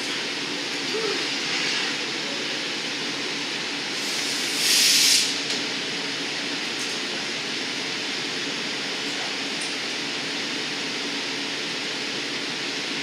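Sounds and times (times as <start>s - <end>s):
gas furnace rushing: 0.0s - 13.0s
loud gas hiss: 3.9s - 5.5s.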